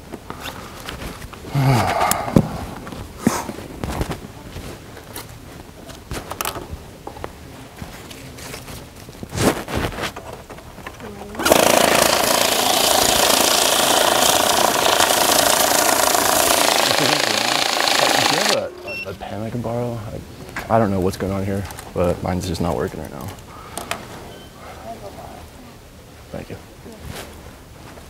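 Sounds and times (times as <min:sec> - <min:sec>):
banknote counting machine running: 0:11.4 - 0:19.2.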